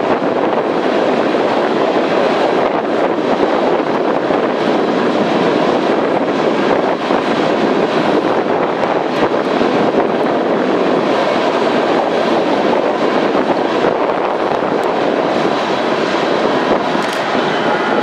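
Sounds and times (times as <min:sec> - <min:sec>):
train cars rumbling on rails: 0:00.0 - 0:18.0
wind on microphone: 0:00.0 - 0:18.0.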